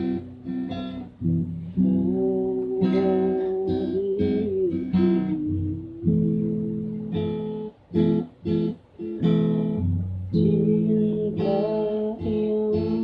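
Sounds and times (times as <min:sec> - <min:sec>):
acoustic guitar strumming: 0:00.0 - 0:13.0.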